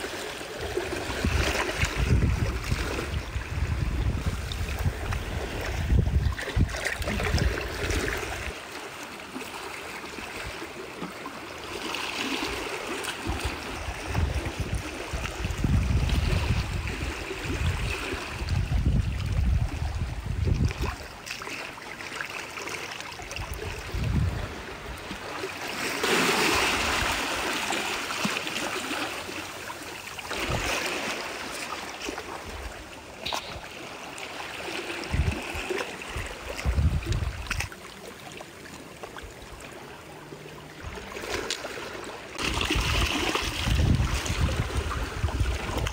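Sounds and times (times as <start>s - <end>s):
rush of water: 0.0s - 45.9s
seawater washing among rocks: 0.0s - 45.9s
wind rumbling on microphone: 0.6s - 8.6s, 13.2s - 21.2s, 23.3s - 25.2s, 30.3s - 30.9s, 34.9s - 37.7s, 42.4s - 45.9s.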